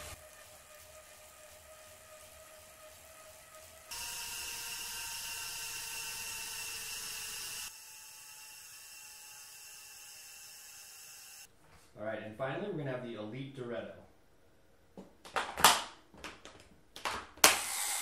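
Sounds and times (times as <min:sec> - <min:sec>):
chain and drivetrain whirring: 0:00.0 - 0:07.7
bike trainer whine: 0:00.0 - 0:11.5.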